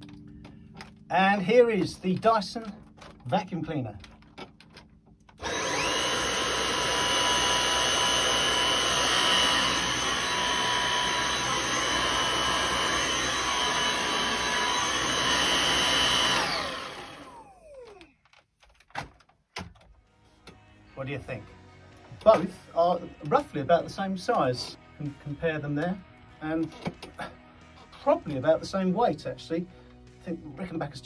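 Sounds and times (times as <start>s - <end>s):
vacuum cleaner running with whine: 5.4s - 18.0s.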